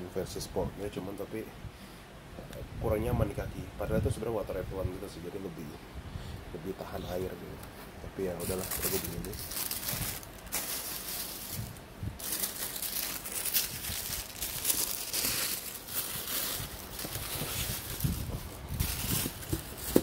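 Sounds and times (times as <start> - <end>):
tissue paper rustling: 8.4 - 20.0.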